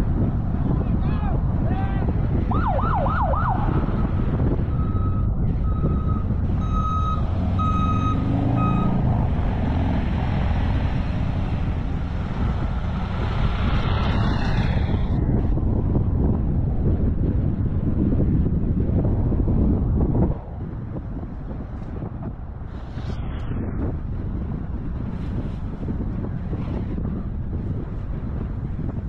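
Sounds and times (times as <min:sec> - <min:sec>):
car road and wind noise: 0:00.0 - 0:29.0
police siren wailing: 0:02.5 - 0:10.0
short beeps: 0:04.8 - 0:09.0.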